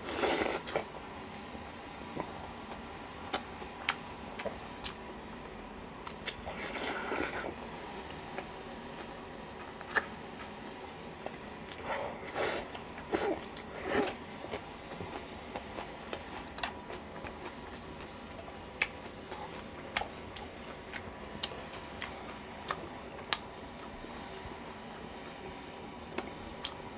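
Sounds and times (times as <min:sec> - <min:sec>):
chewing and mouth noises: 0:06.0 - 0:07.5, 0:08.3 - 0:10.6, 0:11.2 - 0:24.0
loud chewing smacks: 0:08.4 - 0:10.6.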